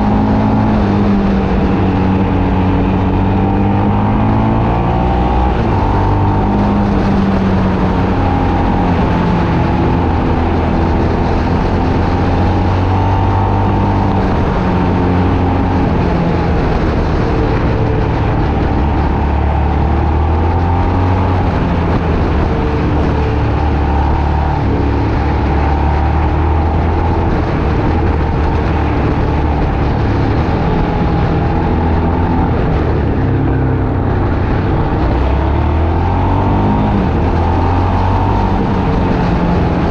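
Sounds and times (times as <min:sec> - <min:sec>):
road and wind noise: 0:00.0 - 0:39.9
vehicle engine running: 0:00.0 - 0:39.9.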